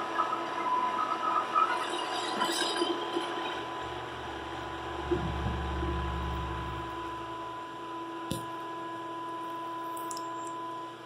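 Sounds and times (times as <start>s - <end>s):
shop vacuum whining: 3.8s - 9.8s
deep rumble: 3.9s - 7.7s.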